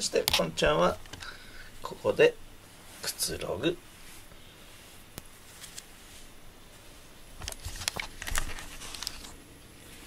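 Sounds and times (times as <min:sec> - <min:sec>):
handling rustles and clicks: 0:07.4 - 0:09.4.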